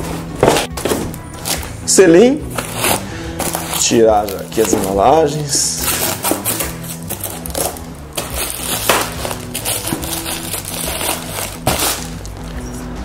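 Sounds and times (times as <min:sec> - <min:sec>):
background music: 0:00.0 - 0:13.0
paper packing wrap crinkling: 0:02.6 - 0:12.4.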